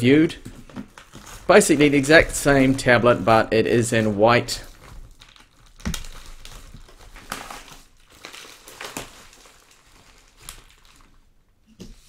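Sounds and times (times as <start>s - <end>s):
bubble wrap crinkling and rustling: 0.0s - 12.0s
envelope tearing open: 3.9s - 11.2s.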